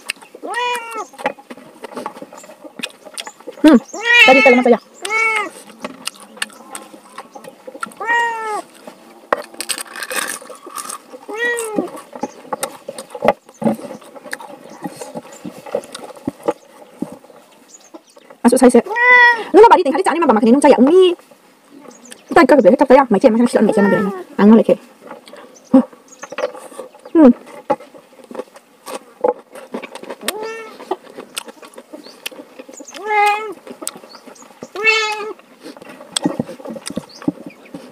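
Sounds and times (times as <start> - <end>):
chewing and lip-smacking: 0.0 - 4.0, 5.0 - 17.2, 28.2 - 37.9
cat meowing: 0.4 - 1.1, 4.0 - 5.5, 8.0 - 8.7, 11.3 - 11.9, 23.7 - 24.2, 30.3 - 30.8, 33.0 - 33.6, 34.8 - 35.4.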